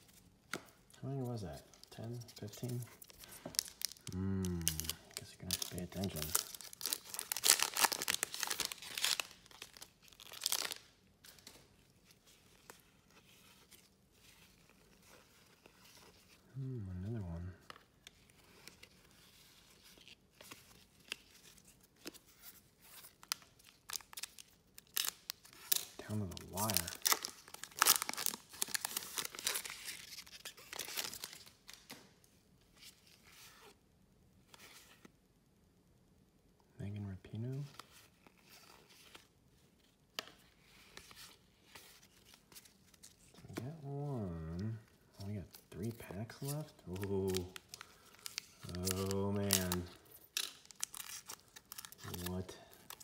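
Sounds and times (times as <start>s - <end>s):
soft handling of cards: 0.0s - 35.4s, 36.6s - 53.0s
foil wrapper tearing and crinkling: 2.7s - 10.9s, 23.1s - 31.9s, 45.8s - 53.0s.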